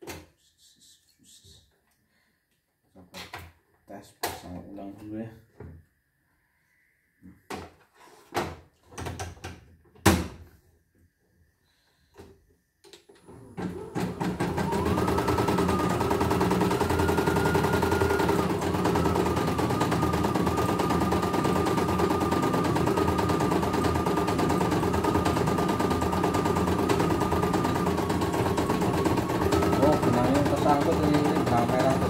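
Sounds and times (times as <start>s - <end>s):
embroidery machine stitching: 13.3s - 32.0s.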